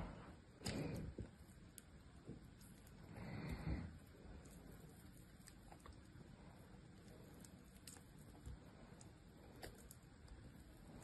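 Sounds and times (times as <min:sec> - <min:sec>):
knife shaving soap: 0:00.6 - 0:11.0.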